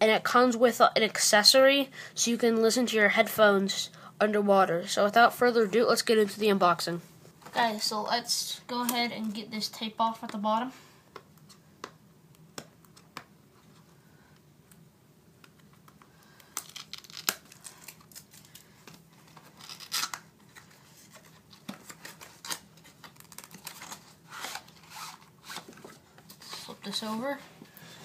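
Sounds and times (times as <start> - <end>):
packaging crinkling: 16.4 - 25.6
tape peeling and tearing: 16.6 - 18.6, 19.4 - 21.2, 21.9 - 25.8.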